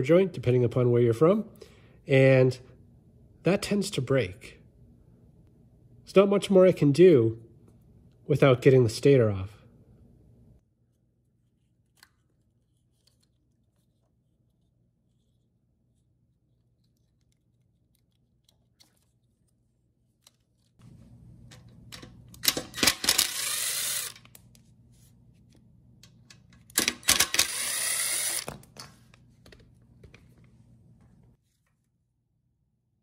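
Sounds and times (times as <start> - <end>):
cordless drill running: 22.8 - 24.3, 27.0 - 28.5.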